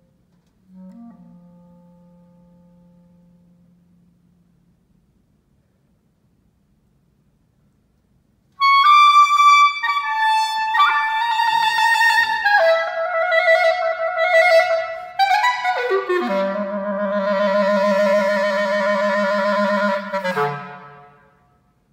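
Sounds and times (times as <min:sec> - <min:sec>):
solo clarinet: 0:00.4 - 0:04.7, 0:08.6 - 0:21.4.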